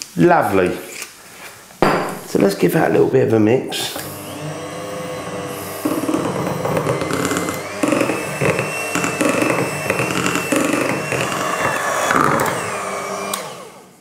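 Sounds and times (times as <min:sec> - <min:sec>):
electric hand mixer whisking batter: 0:03.9 - 0:14.0.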